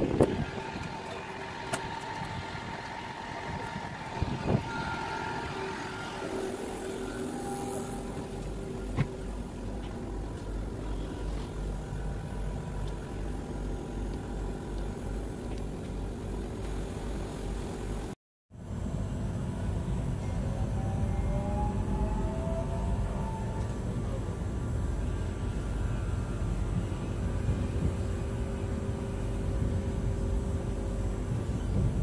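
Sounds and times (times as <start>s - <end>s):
low regular throbbing: 0.0s - 32.0s
steady electrical hum: 0.0s - 32.0s.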